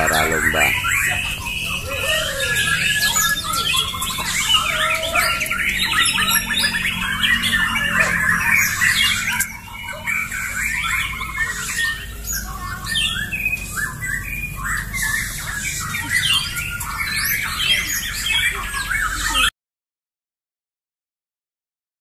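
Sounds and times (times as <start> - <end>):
songbirds singing: 0.0 - 19.5.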